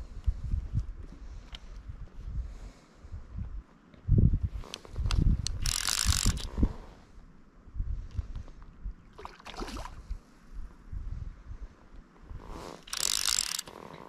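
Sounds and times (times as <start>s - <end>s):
wind rumble on microphone: 0.0s - 12.8s
fishing reel ratchet rasping: 5.5s - 6.5s, 12.8s - 13.9s.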